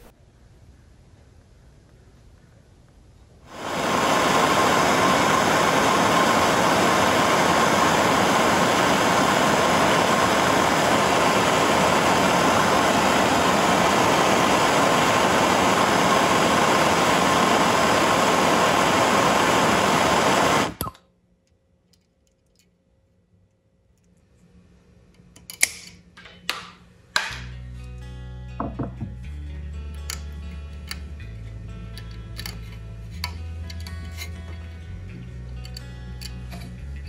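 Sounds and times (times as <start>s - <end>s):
gas torch hissing: 3.5s - 20.9s.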